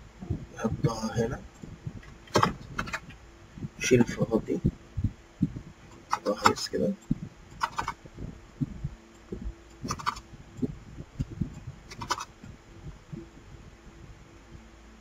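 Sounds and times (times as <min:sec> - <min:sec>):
faint steady hum: 0:00.0 - 0:15.0
keyboard and mouse clicking: 0:01.6 - 0:03.2, 0:05.9 - 0:08.0, 0:09.2 - 0:12.4.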